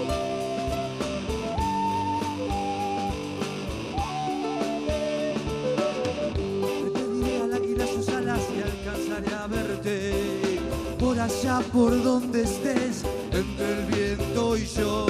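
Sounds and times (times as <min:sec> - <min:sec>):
wooden flute melody: 0:00.0 - 0:08.7
band playing folk-rock: 0:00.0 - 0:15.0.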